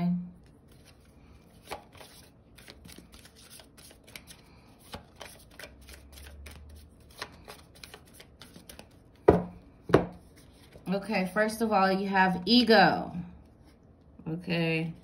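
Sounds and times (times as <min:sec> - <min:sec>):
cards being shuffled: 0:00.4 - 0:09.4.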